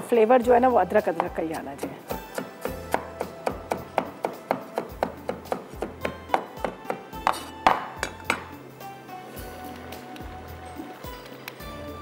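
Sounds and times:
background music: 0:00.0 - 0:12.0
knife chopping on cutting board: 0:01.2 - 0:08.5.

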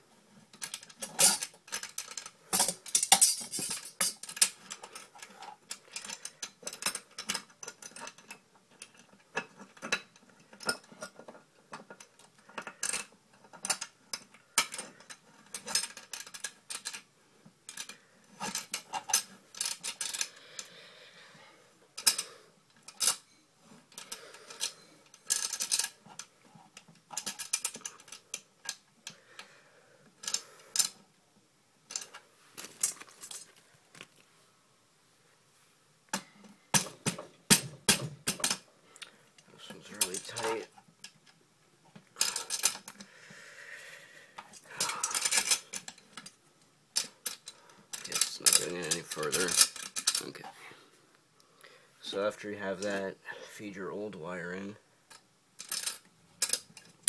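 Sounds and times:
metallic clicks and clinks: 0:00.5 - 0:17.1, 0:22.0 - 0:29.2, 0:39.6 - 0:41.4, 0:42.2 - 0:43.0, 0:44.4 - 0:46.4, 0:47.0 - 0:50.4, 0:55.1 - 0:57.0.

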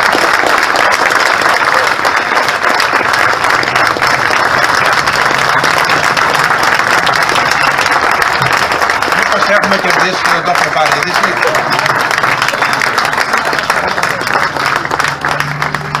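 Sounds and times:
crowd applauding: 0:00.0 - 0:16.0.

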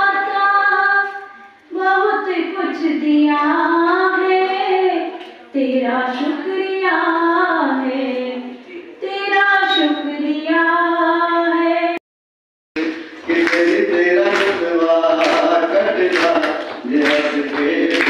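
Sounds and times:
man's voice: 0:12.8 - 0:18.0.

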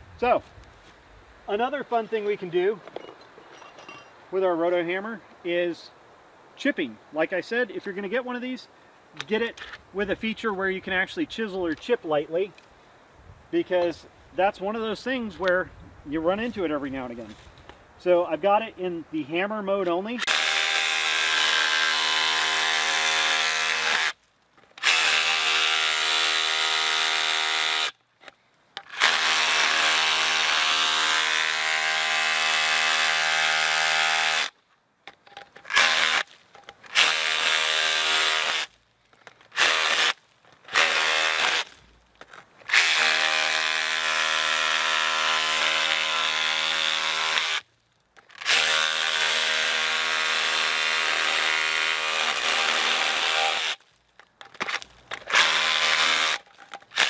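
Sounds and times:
rotary hammer chipping concrete: 0:28.8 - 0:34.4, 0:35.7 - 0:38.7, 0:39.5 - 0:41.8, 0:48.2 - 0:53.8, 0:54.5 - 0:57.0.

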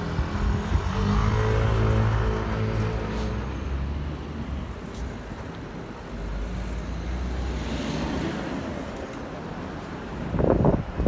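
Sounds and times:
vehicle passing: 0:00.0 - 0:04.8
road traffic rumble: 0:00.0 - 0:11.0.

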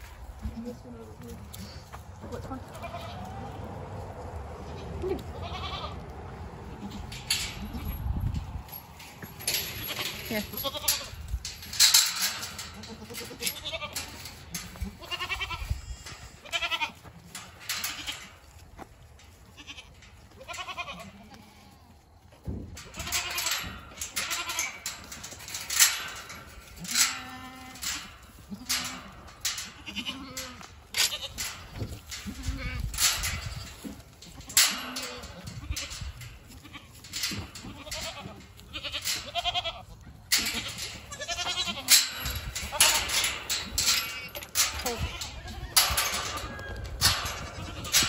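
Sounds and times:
scuffling noises: 0:00.0 - 0:48.0
goats bleating: 0:01.6 - 0:03.6, 0:04.6 - 0:06.1, 0:09.6 - 0:11.2, 0:12.4 - 0:18.4, 0:19.5 - 0:22.0, 0:22.8 - 0:25.2, 0:25.9 - 0:33.2, 0:34.2 - 0:48.0.

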